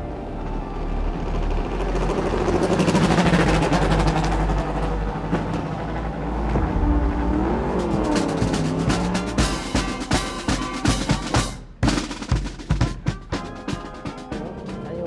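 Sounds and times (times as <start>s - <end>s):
motorcycle engine running: 1.2s - 12.0s.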